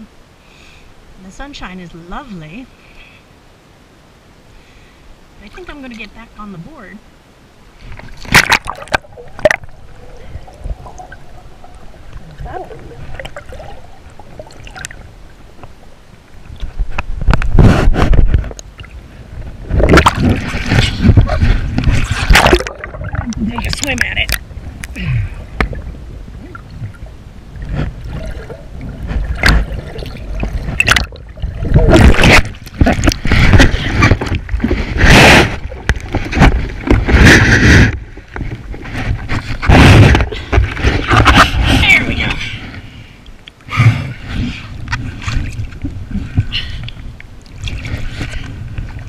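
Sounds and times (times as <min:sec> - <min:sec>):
faint bubbling and gurgles: 0:04.4 - 0:49.0
muffled low underwater rumble: 0:04.6 - 0:49.0
underwater splash: 0:07.8 - 0:15.8, 0:16.4 - 0:41.8.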